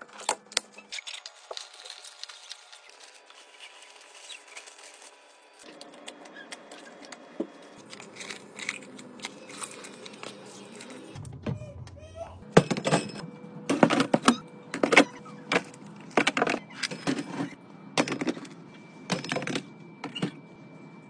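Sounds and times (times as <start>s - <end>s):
plastic packaging crinkling: 0.0s - 11.2s.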